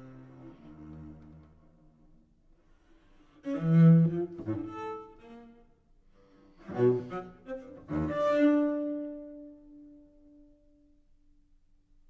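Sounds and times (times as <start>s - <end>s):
cello accented bow strokes: 3.4s - 10.4s.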